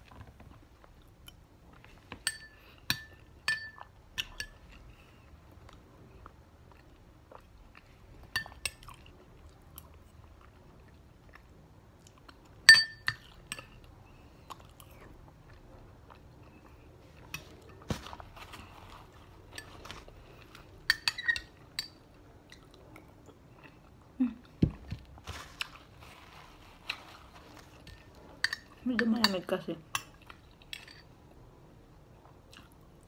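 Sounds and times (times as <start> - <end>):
soft chewing: 0.0 - 33.0
metal spoon clinking glass bowl: 2.2 - 4.5, 12.7 - 13.7, 20.9 - 22.0.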